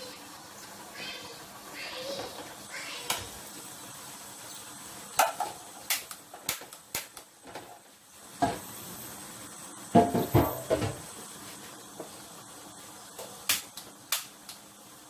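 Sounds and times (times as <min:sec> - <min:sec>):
utensils knocking on cookware: 0:10.0 - 0:11.0.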